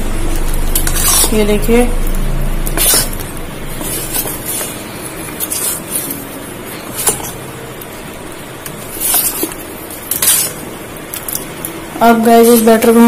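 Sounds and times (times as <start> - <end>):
spoon stirring thick batter: 0.4 - 1.7, 2.6 - 11.5.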